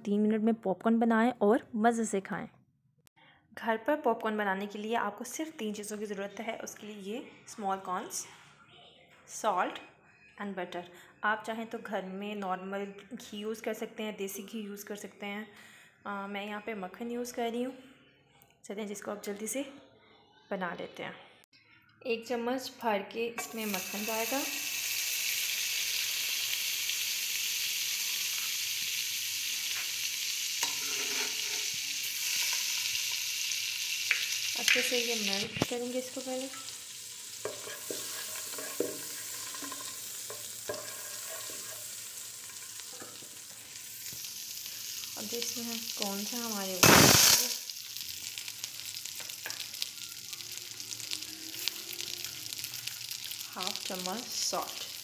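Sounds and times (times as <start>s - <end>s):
butter sizzling in a pan: 23.4s - 55.0s.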